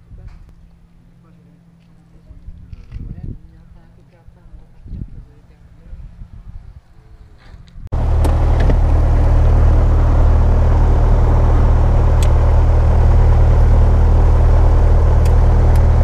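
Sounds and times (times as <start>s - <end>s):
aircraft piston engine running: 7.9s - 16.0s.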